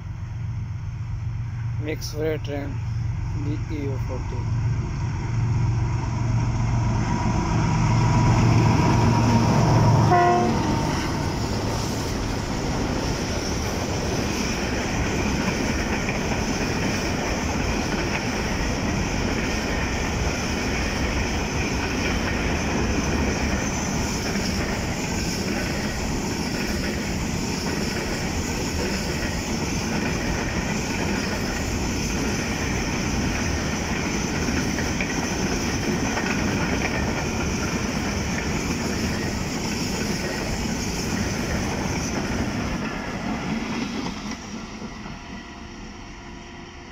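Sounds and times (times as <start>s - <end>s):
locomotive engine hum: 0.0s - 46.9s
train horn: 8.3s - 11.6s.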